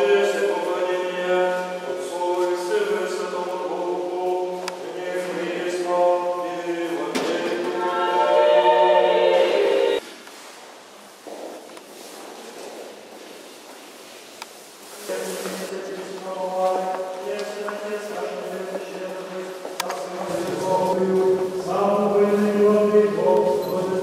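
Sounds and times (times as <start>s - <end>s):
faint church room noise: 0.0s - 24.0s
choir singing a cappella chant: 7.5s - 10.0s.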